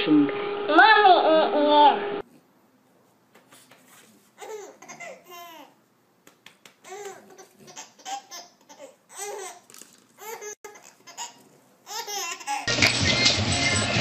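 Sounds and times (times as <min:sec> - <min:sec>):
baby giggling: 0:04.4 - 0:05.8, 0:06.8 - 0:12.7.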